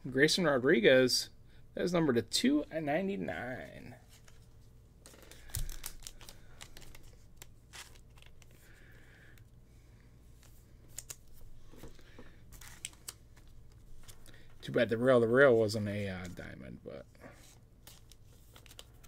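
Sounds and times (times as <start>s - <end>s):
plastic wrappers crinkling: 5.0s - 8.8s, 12.5s - 14.4s.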